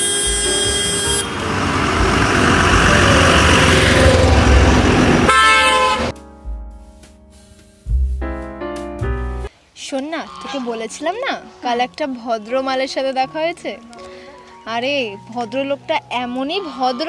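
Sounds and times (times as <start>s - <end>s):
truck passing by: 0.0s - 6.1s
truck horn: 0.0s - 6.2s.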